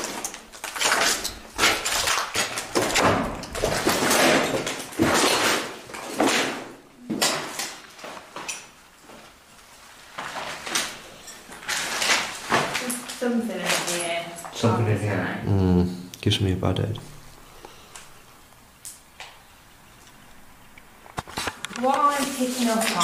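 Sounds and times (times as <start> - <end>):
people scraping and shuffling: 21.2 - 23.0.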